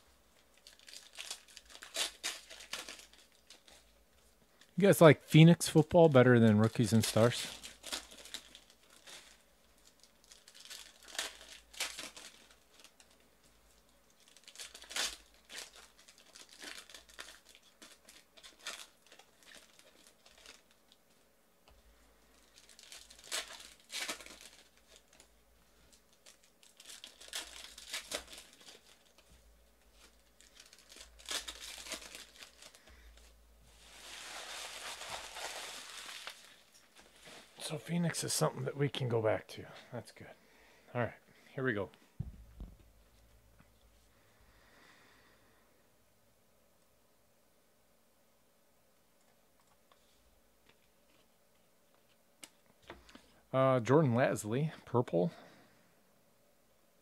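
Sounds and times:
foil wrappers crinkling and tearing: 0.4s - 4.8s, 5.4s - 21.2s, 22.2s - 37.7s
rustling: 6.6s - 37.7s.

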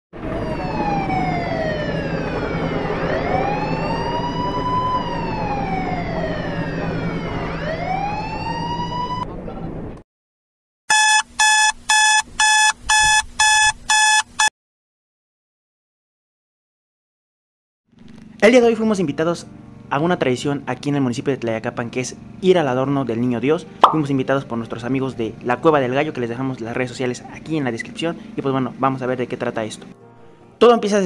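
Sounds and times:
ambulance siren wailing: 0.2s - 9.3s
alarm clock beeping: 10.9s - 14.5s.

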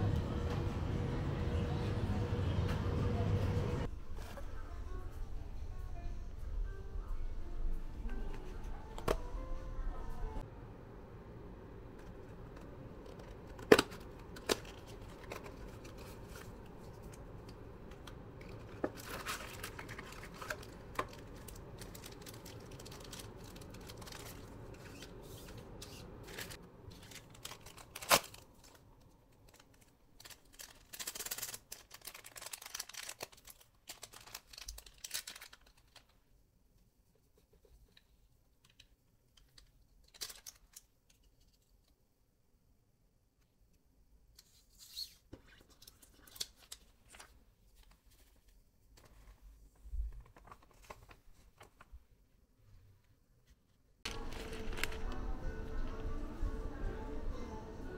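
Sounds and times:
low steady hum: 0.0s - 30.6s, 54.0s - 57.9s.

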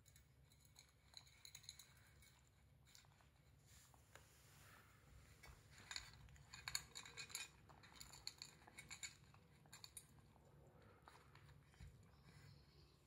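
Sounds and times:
metal muffin tin clinking: 5.8s - 10.2s.

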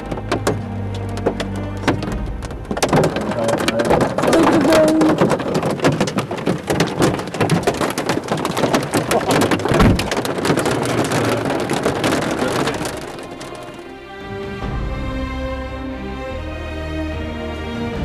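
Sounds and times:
hail and rain pelting a car roof: 0.0s - 14.7s
low thud: 9.6s - 10.4s.

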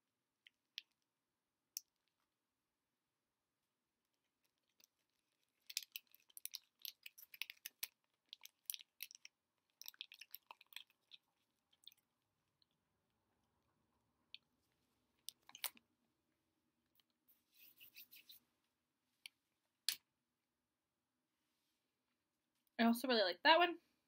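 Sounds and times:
person chewing candy: 4.1s - 12.9s, 14.3s - 15.8s.

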